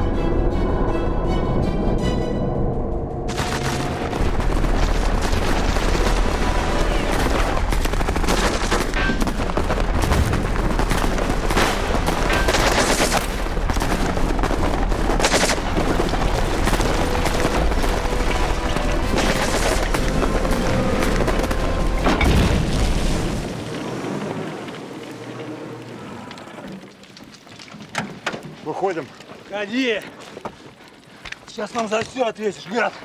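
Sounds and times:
automatic gunfire: 3.3 - 17.6.

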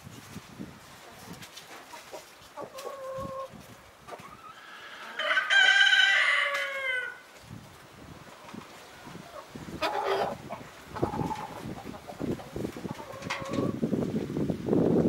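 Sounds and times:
rooster crowing: 4.7 - 7.2.

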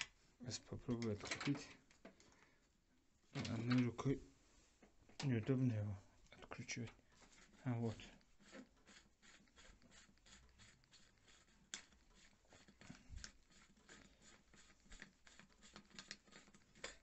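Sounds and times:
end cap clicks and scrapes: 7.9 - 17.0.

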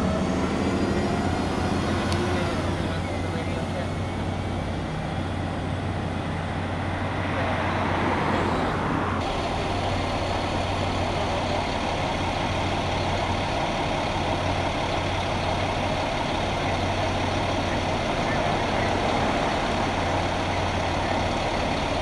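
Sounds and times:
heavy vehicle engine idling: 0.0 - 22.0.

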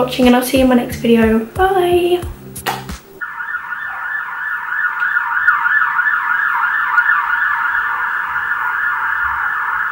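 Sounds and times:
siren-like wailing tone: 3.2 - 9.9.

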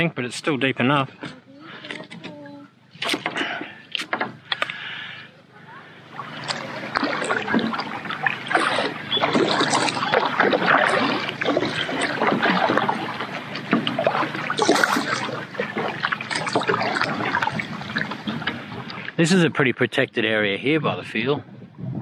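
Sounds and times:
kayak paddle splashing in water: 6.1 - 19.2
water dripping: 6.2 - 19.1.

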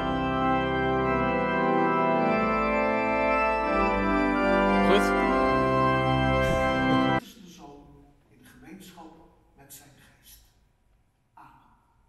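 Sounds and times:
organ playing sustained chords: 0.0 - 7.2.

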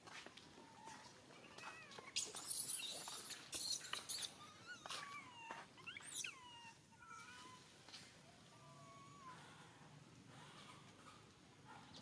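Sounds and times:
baby monkey squealing: 2.2 - 6.4.

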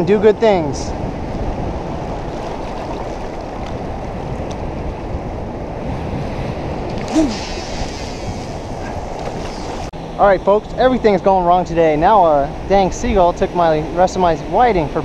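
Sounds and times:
wind on microphone: 0.0 - 15.0
surf washing around legs: 1.9 - 4.1, 7.0 - 9.9
brief vocal sound: 7.0 - 8.2.

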